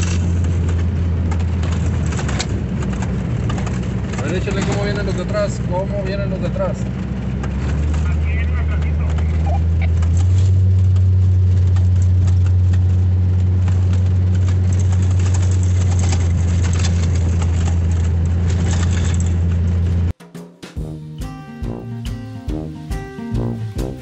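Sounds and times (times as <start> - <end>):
small rattles and clicks: 0.0 - 6.2, 10.0 - 20.2
off-road vehicle engine drone: 0.0 - 20.2, 21.6 - 24.0
plucked-string music: 20.8 - 24.0.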